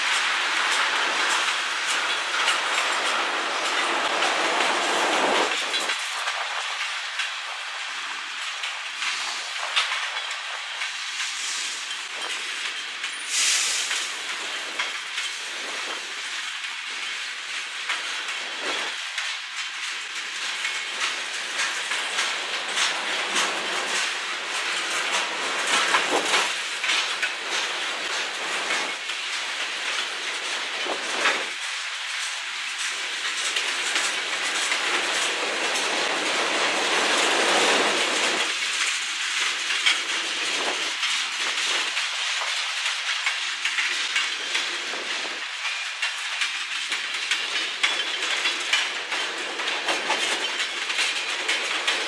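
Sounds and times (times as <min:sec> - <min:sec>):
freight train rolling past: 0:00.0 - 0:52.0
wheels clicking over rail joints: 0:00.0 - 0:52.0.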